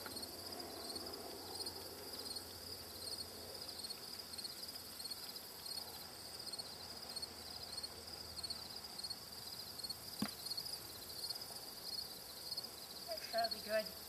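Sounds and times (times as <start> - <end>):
insects chirping: 0.0 - 14.0.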